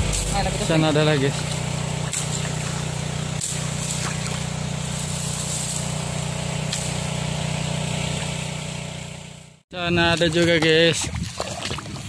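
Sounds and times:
small engine droning: 0.0 - 9.6.

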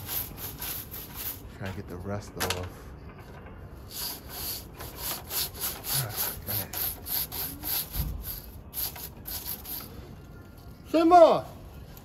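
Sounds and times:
broom bristles brushing plastic grill: 0.0 - 1.5.

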